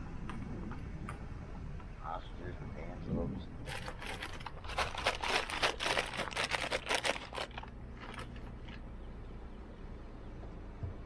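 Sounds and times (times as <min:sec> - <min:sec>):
crinkling rustle: 0:03.6 - 0:08.8.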